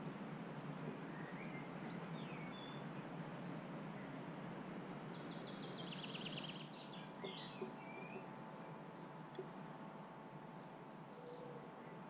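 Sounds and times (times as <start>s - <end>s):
small songbird singing: 0.0s - 0.5s, 1.1s - 3.1s, 4.0s - 8.3s, 10.2s - 12.0s
outdoor background noise: 0.0s - 12.0s.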